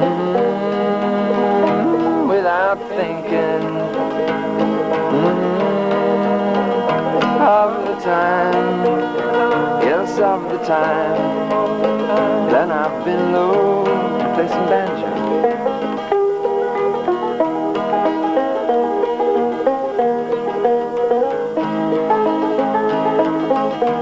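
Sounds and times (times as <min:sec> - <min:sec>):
acoustic guitar: 0:00.0 - 0:24.0
banjo picking: 0:00.0 - 0:24.0.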